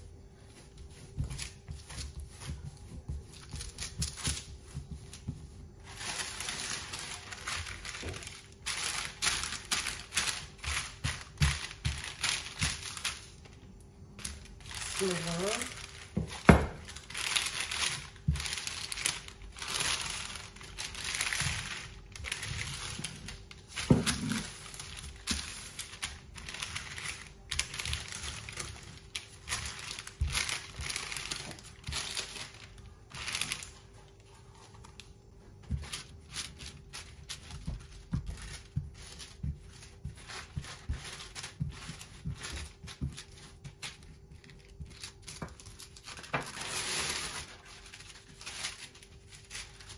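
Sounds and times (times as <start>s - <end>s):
baking paper rustling: 0.0s - 49.9s
rolling pin rolling dough: 0.0s - 49.9s
hands tapping on paper: 0.9s - 13.3s.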